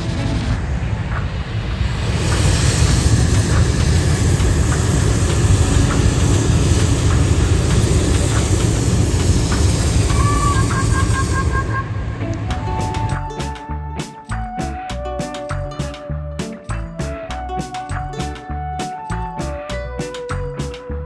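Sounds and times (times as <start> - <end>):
propane burner blast: 0.0 - 13.5.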